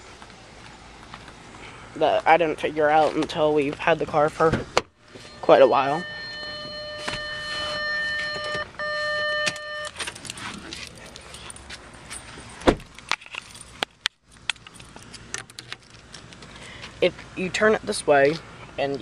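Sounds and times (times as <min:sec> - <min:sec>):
car door shutting: 0:04.4 - 0:11.0, 0:12.6 - 0:13.0
car electronic warning tone: 0:05.1 - 0:10.4
keys jangling: 0:09.5 - 0:12.2, 0:12.8 - 0:16.3.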